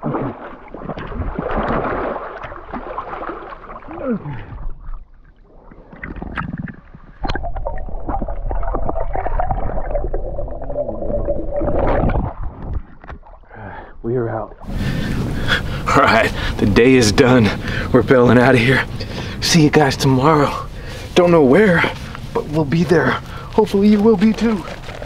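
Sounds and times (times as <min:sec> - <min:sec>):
river water splashing: 0:00.0 - 0:09.8.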